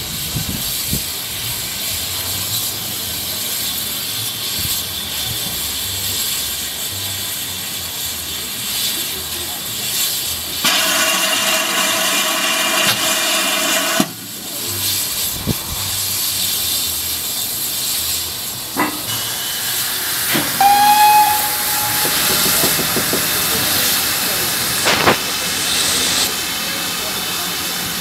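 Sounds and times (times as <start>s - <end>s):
steam hissing: 0.0s - 28.0s
steam whistle blast: 19.1s - 25.2s
sharp knocks: 22.0s - 23.5s.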